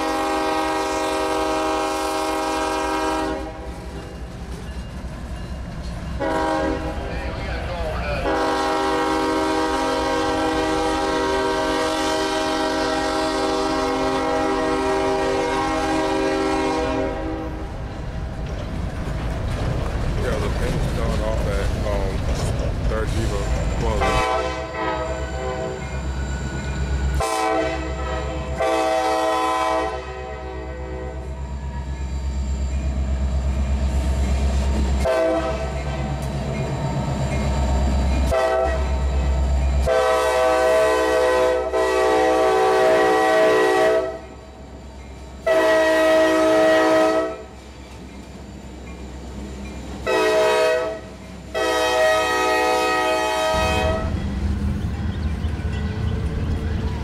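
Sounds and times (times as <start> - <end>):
train air horn blasts: 0.0 - 3.8, 6.2 - 7.1, 8.2 - 17.7, 23.9 - 25.9, 27.1 - 31.4, 35.0 - 35.8, 38.2 - 39.1, 39.8 - 44.4, 45.4 - 47.6, 50.0 - 54.4
diesel engine rumble: 17.8 - 24.1.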